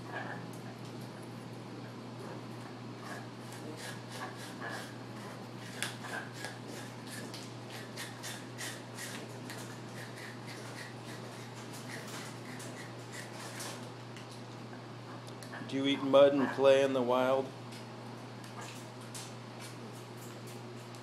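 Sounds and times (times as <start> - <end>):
parrot beak gnawing and scraping: 3.0 - 13.8.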